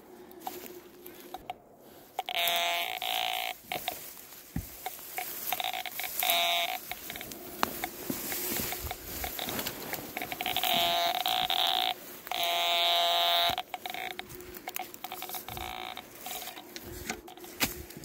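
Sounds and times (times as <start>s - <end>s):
rustling in dry grass: 0.0s - 18.0s
metal detector buzzing tone: 0.4s - 4.2s, 4.8s - 17.7s
shovel digging in ground: 14.2s - 18.0s.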